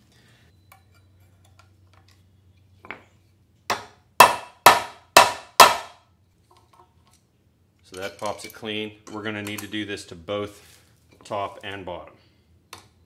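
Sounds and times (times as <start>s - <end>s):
hammer striking metal bolt: 3.7s - 6.0s.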